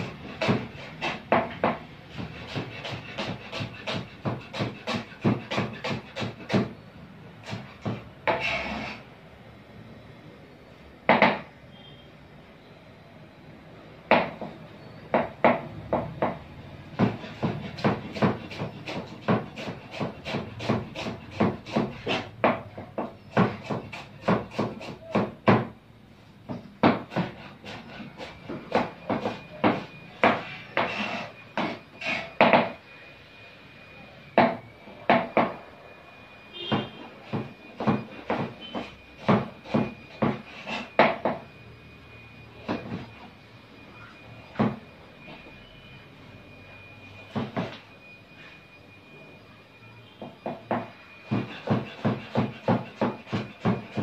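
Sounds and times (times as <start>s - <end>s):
knife chopping on cutting board: 0.0s - 6.8s, 7.4s - 8.5s, 17.0s - 25.8s, 26.8s - 32.7s, 36.7s - 41.4s, 50.5s - 54.0s.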